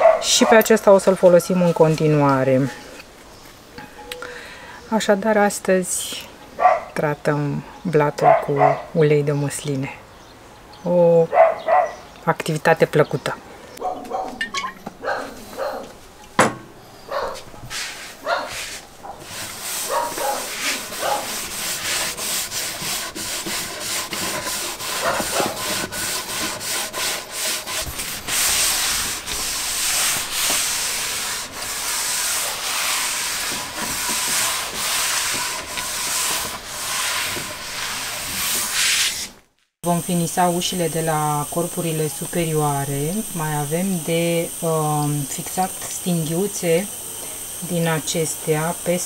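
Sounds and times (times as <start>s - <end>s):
cloth wiping a wooden countertop: 17.2s - 39.3s.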